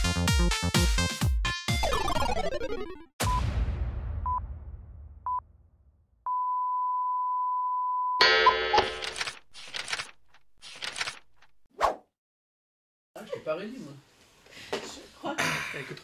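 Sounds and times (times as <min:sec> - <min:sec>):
low boom: 0:03.2 - 0:06.1.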